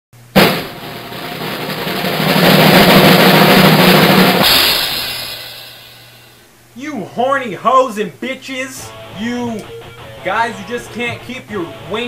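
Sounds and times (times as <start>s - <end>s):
drum roll: 0.2s - 6.5s, 8.9s - 12.0s
cymbal crash: 0.3s - 6.5s.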